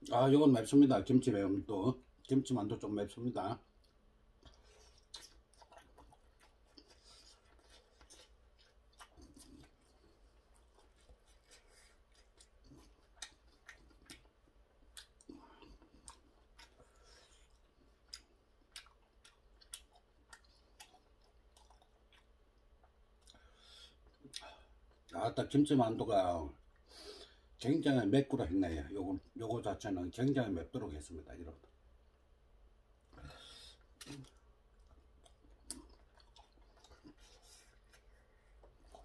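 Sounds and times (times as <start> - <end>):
faint chewing: 3.3 - 25.2, 33.0 - 39.0.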